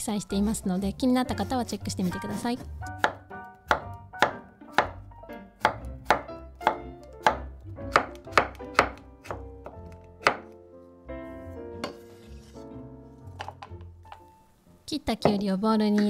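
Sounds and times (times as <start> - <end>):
light background music: 0.0 - 16.0
knife slicing on wooden board: 11.8 - 12.6.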